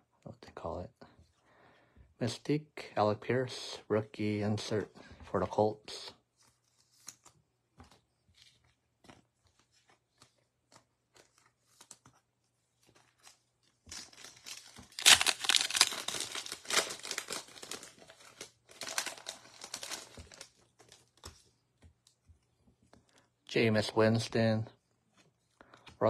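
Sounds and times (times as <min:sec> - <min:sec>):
foil wrapper crinkling and tearing: 0:12.8 - 0:21.3.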